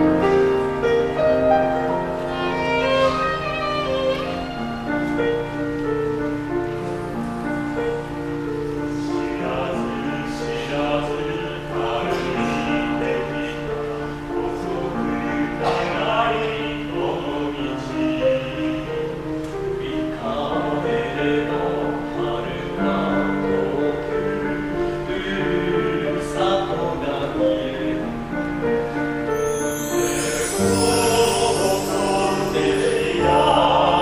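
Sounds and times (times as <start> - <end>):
piano: 0.0 - 34.0
violin: 0.0 - 34.0
male choir singing ballad: 9.0 - 19.2, 19.8 - 28.1, 29.8 - 34.0.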